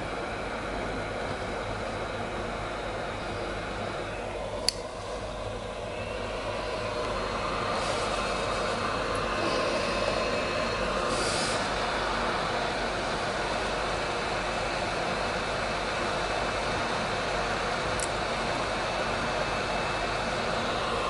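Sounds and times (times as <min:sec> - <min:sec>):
heat gun blowing air: 0:06.5 - 0:13.0.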